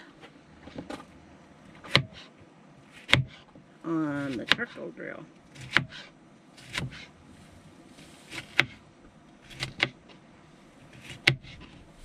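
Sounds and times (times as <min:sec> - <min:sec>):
knife chopping on cutting board: 0:01.8 - 0:02.3, 0:03.0 - 0:03.5, 0:04.3 - 0:04.7, 0:05.6 - 0:07.1, 0:08.3 - 0:08.8, 0:09.5 - 0:10.0.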